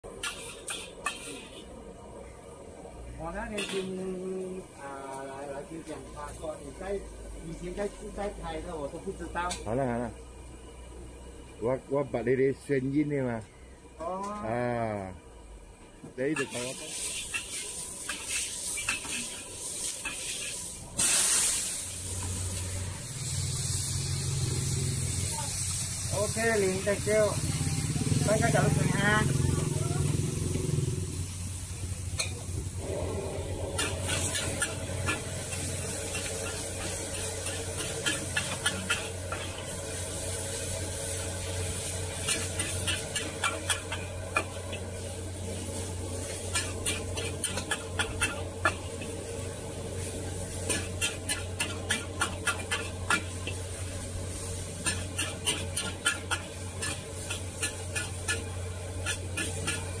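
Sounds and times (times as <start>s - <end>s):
steady sizzle: 0.0s - 60.0s
metal spatula scraping wok: 0.1s - 1.8s, 3.4s - 4.2s, 16.3s - 22.7s, 32.2s - 60.0s.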